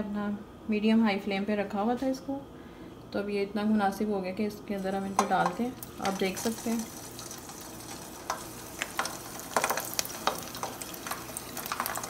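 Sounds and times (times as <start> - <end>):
fries sizzling in hot oil: 4.7 - 12.0
oil popping and crackling: 5.1 - 12.0.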